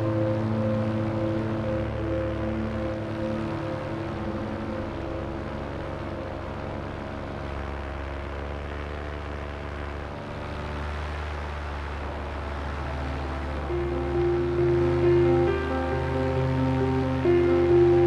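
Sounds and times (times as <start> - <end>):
ambient music with held chords: 0.0 - 18.0
low bass drone: 0.0 - 18.0.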